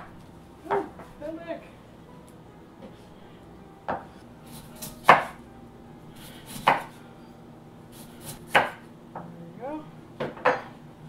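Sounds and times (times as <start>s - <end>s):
knife chopping on wooden board: 3.9s - 5.4s, 6.5s - 6.9s, 8.2s - 8.8s.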